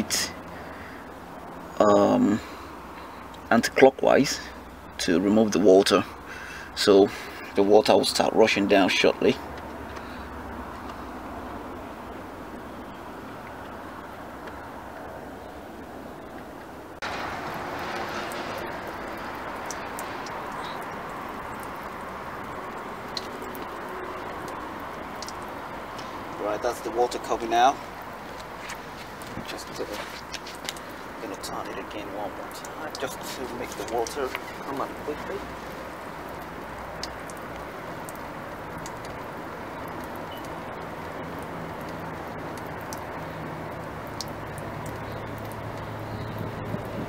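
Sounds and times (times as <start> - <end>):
liquid trickling onto asphalt: 0.0 - 47.0
light ticks: 25.2 - 26.2, 30.3 - 31.0, 36.3 - 40.6, 44.0 - 46.4.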